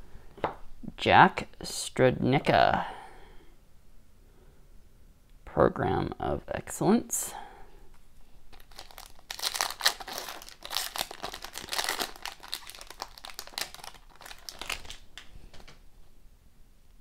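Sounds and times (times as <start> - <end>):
foil wrapper crinkling and tearing: 8.5 - 15.3.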